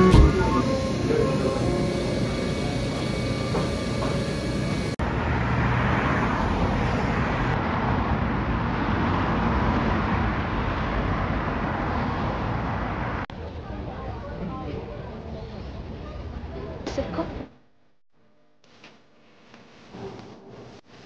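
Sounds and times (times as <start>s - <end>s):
cars passing on a street: 0.0s - 13.7s.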